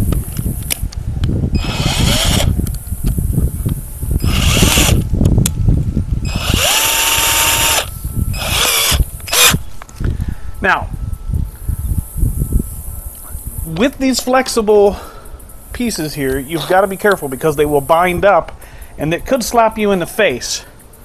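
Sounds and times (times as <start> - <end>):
cordless drill motor whine: 1.6 - 2.8, 4.2 - 5.1, 6.2 - 9.8.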